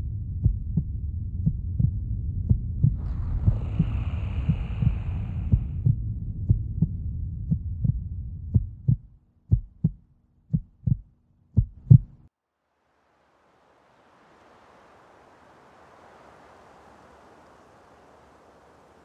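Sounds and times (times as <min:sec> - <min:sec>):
low rumble: 0:00.0 - 0:09.6
heartbeat thumps: 0:00.0 - 0:12.3.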